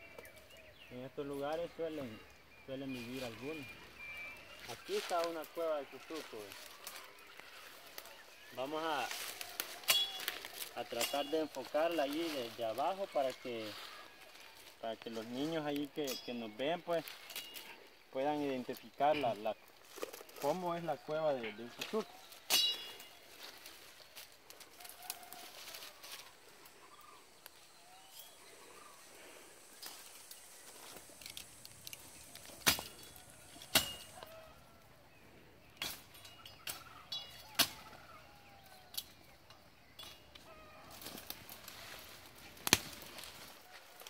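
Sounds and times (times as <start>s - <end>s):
dry leaves and twigs crunching: 0.0s - 44.0s
branches breaking: 4.6s - 16.3s, 16.9s - 17.9s, 18.7s - 20.8s, 21.6s - 27.6s, 29.8s - 34.4s, 35.7s - 38.1s, 40.0s - 44.0s.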